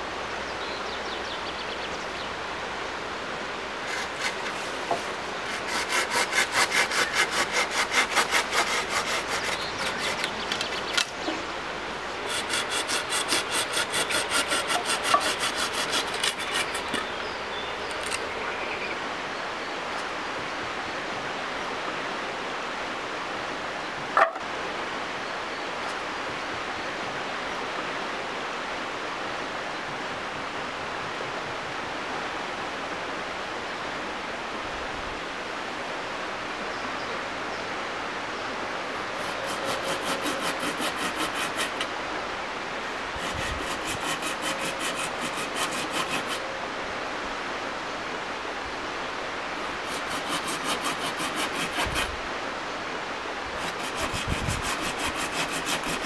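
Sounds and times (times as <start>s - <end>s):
steady background hiss: 0.0s - 56.0s
hand saw rasping through wood: 3.8s - 10.6s, 12.2s - 17.0s, 39.1s - 41.9s, 43.1s - 46.4s, 49.6s - 52.2s, 53.6s - 56.0s.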